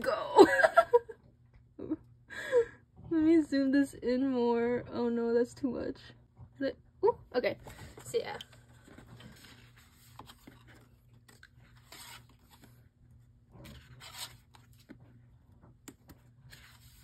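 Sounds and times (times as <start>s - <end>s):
postcards being flipped: 7.6s - 12.8s, 13.6s - 15.0s, 15.9s - 17.0s.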